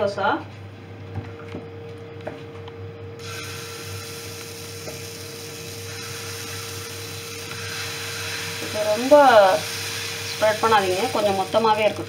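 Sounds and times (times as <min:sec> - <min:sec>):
steady hum: 0:00.0 - 0:12.0
batter sizzling on hot pan: 0:03.2 - 0:12.0.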